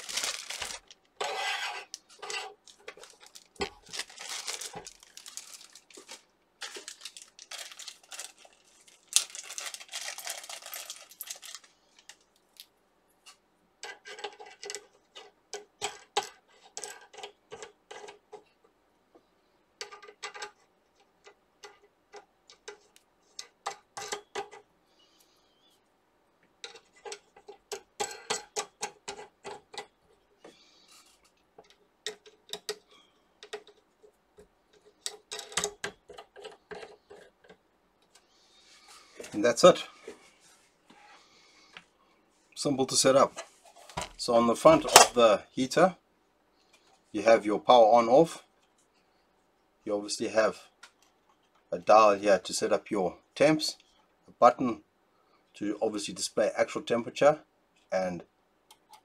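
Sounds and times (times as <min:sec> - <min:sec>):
plastic wrapping crinkling: 0:00.0 - 0:01.1, 0:01.9 - 0:12.7.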